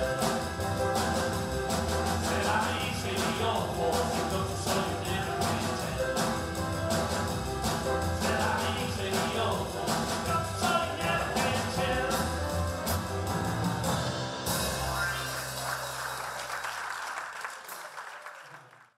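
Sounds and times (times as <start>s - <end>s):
jazz trio playing: 0.0s - 16.4s
audience applause: 15.2s - 19.0s.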